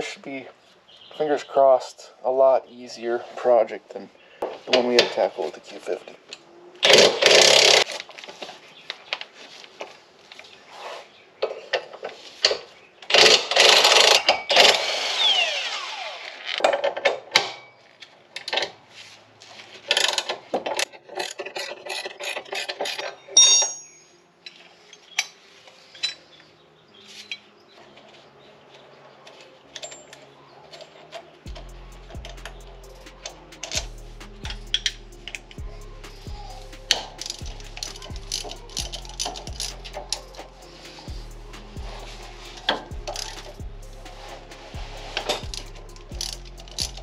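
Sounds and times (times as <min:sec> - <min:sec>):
cordless impact wrench running: 0:13.2 - 0:16.6
hand wrench clicking: 0:31.1 - 0:33.9, 0:34.5 - 0:35.6, 0:36.9 - 0:40.6, 0:42.6 - 0:43.6, 0:45.2 - 0:47.0.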